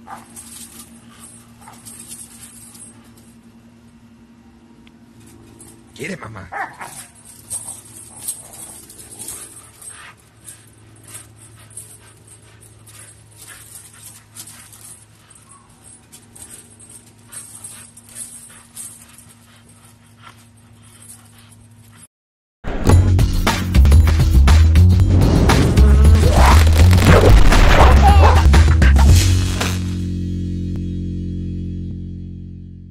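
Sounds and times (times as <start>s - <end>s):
rope toy clicks and rustles: 0.0s - 3.5s, 6.6s - 22.1s
steady low hum: 0.0s - 22.1s.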